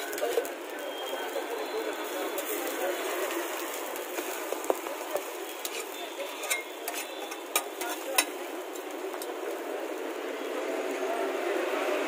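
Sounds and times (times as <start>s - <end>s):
sizzling hiss: 0.0s - 12.0s
metal spatula scraping griddle: 5.5s - 9.3s.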